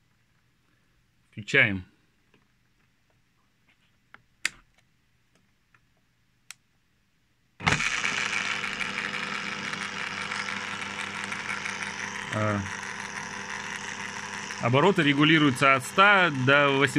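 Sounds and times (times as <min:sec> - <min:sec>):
electric drill motor running: 0:07.6 - 0:16.9.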